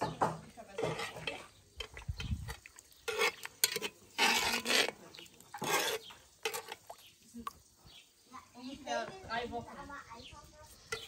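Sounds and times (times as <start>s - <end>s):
utensil scraping through food in pot: 0.6s - 7.1s, 10.6s - 11.0s.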